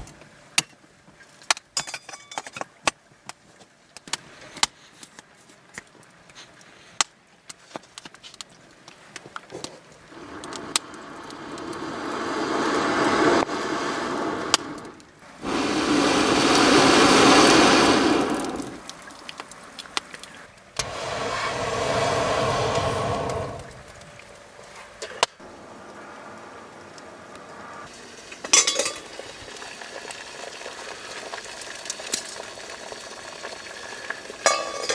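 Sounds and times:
burning wood crackling: 3.2s - 34.9s
air blown through bellows tube: 10.1s - 18.9s, 20.8s - 23.9s.

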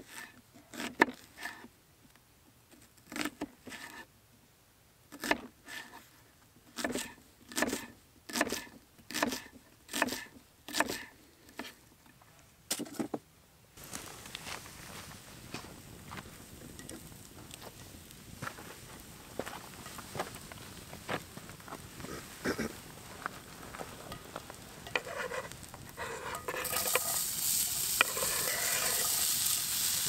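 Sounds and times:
campfire hissing and crackling: 13.8s - 30.0s.

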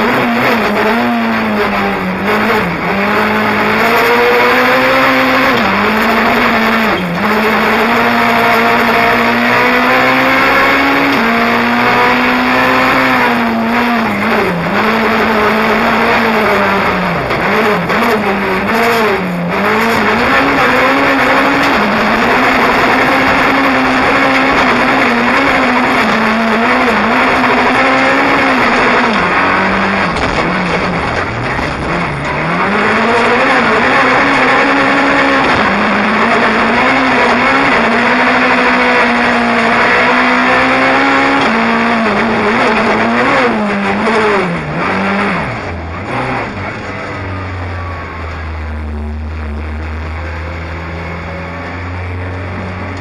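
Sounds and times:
rally car engine at high revs: 0.0s - 53.0s
tyre and road noise: 0.0s - 53.0s.

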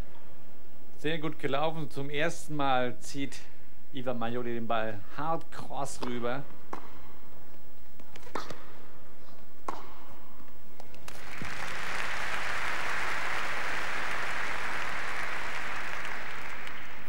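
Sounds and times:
tennis ball strikes: 6.0s - 7.2s, 8.1s - 8.8s, 9.6s - 11.1s
crowd applause: 11.1s - 17.0s.

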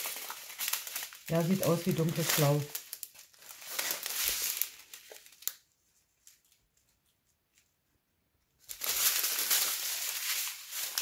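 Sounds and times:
plastic packaging crinkling: 0.0s - 7.1s, 8.6s - 11.0s.

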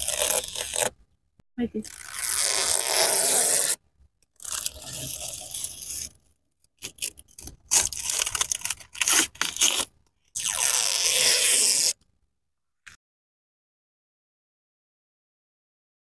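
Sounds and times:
plastic film peeling: 0.0s - 1.0s, 1.9s - 3.8s, 6.8s - 12.0s
plastic film crinkling: 6.8s - 9.9s.

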